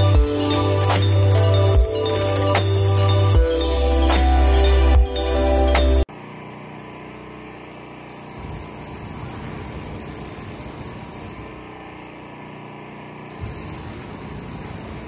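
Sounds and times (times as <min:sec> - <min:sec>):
flamethrower rushing hiss: 0:08.1 - 0:12.0, 0:13.3 - 0:15.0.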